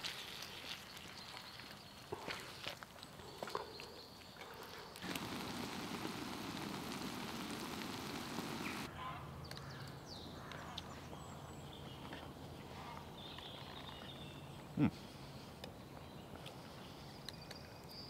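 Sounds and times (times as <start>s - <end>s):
bird calls: 3.2s - 8.9s
low hum: 5.0s - 8.9s
omelette sizzling in frying pan: 5.0s - 8.9s.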